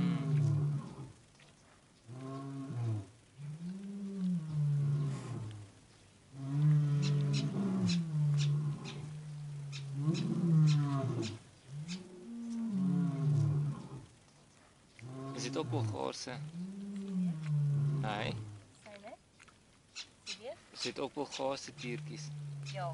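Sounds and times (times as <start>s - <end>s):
tiger cubs growling and moaning: 0.0s - 1.3s, 2.0s - 14.2s, 15.0s - 18.7s, 21.2s - 22.9s
chewing and licking clicks: 18.8s - 19.8s.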